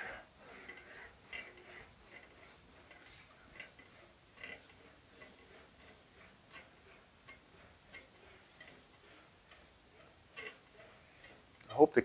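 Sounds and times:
sheet metal ticking in english wheel: 0.0 - 12.0.

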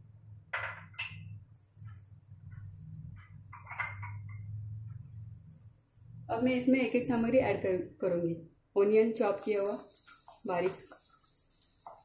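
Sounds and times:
low steady hum: 0.0 - 12.0
glass bowl clinking on pan: 0.6 - 1.3, 3.5 - 4.5
hot oil popping and crackling: 9.4 - 12.0.

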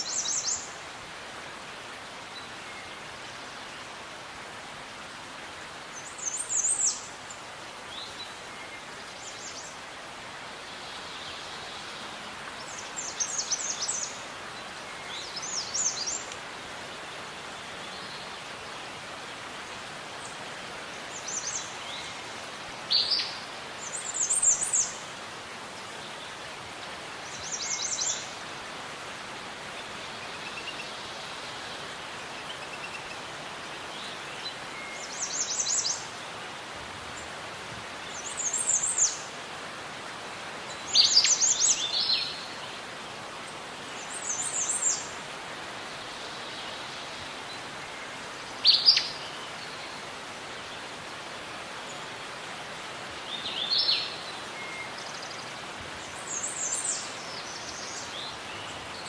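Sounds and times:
outdoor ambience hiss: 0.0 - 59.0.

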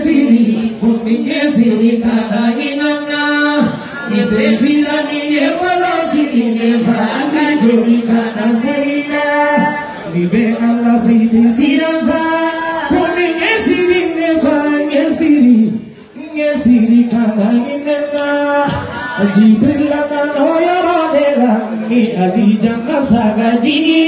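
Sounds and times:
woman singing into microphone: 0.0 - 14.3
man singing into microphone: 0.0 - 24.0.

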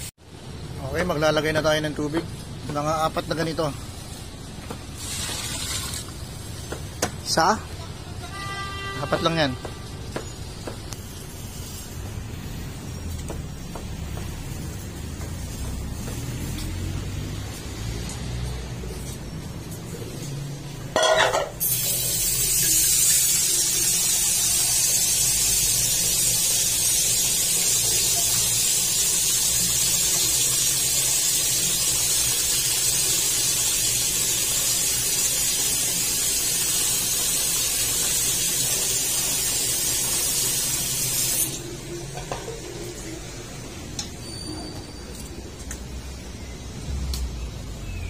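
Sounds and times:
tap water gushing into metal pot: 5.0 - 6.2, 21.8 - 41.6.

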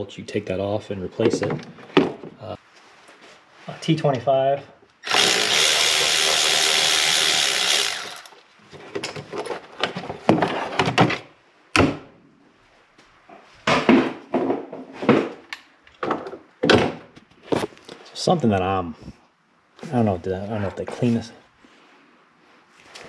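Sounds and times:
power tool motor running: 5.0 - 8.4.

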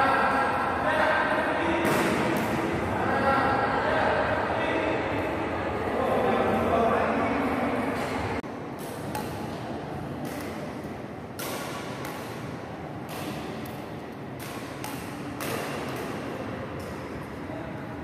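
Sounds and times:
background hall noise: 0.0 - 18.0
rackets hitting shuttlecocks: 1.8 - 2.7, 8.7 - 17.4.

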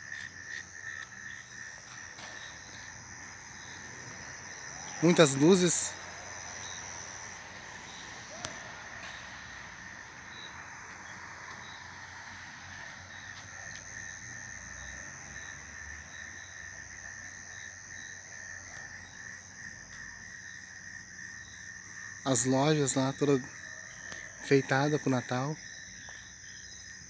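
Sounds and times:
night insects trilling: 0.0 - 27.0.

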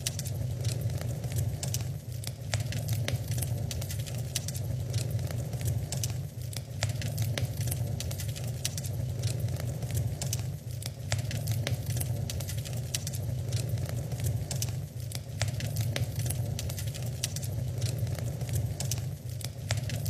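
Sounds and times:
low rumble of flames: 0.0 - 20.0
wood fire crackling and popping: 0.0 - 20.0.

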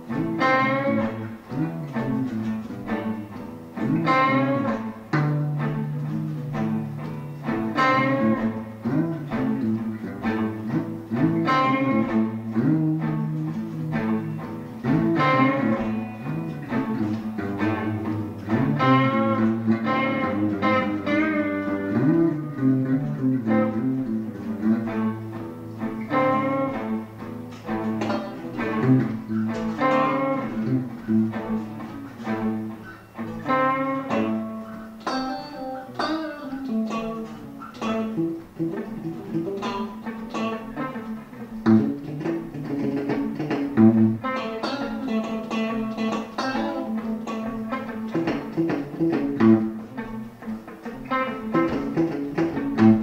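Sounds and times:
acoustic guitar: 0.0 - 53.0
electric guitar: 0.0 - 53.0.

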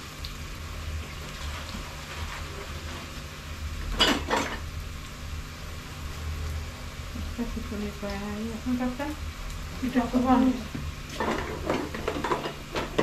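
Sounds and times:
metal cookware clattering: 11.2 - 13.0.

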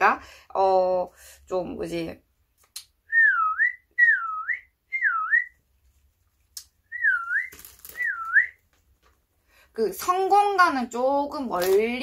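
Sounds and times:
person whistling short notes: 3.1 - 5.6, 6.8 - 8.6.

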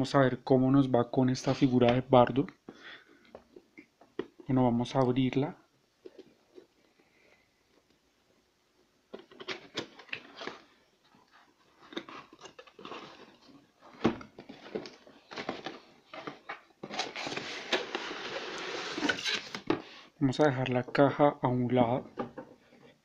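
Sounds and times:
cardboard flap scraping and rustling: 14.5 - 19.7.

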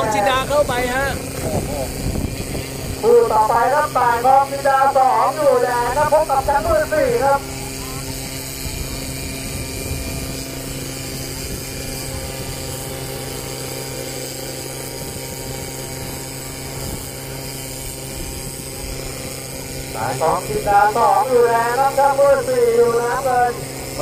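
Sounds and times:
racing boat engines running: 0.0 - 24.0.

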